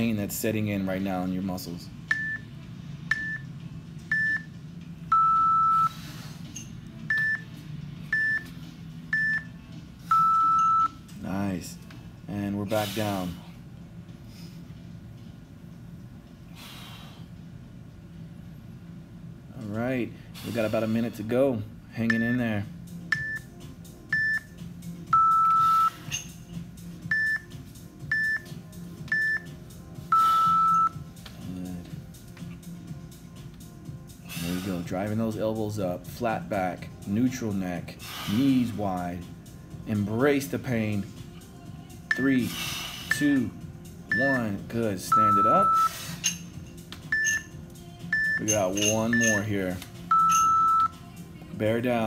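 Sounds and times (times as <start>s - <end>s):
long low timer beep: 3.1s - 3.5s, 4.1s - 4.5s, 5.1s - 5.9s, 9.1s - 9.5s, 10.1s - 11.0s, 24.1s - 24.5s, 25.1s - 26.0s, 29.1s - 29.5s, 30.1s - 31.0s, 44.1s - 44.5s, 45.1s - 45.9s, 48.1s - 49.4s, 50.1s - 50.9s.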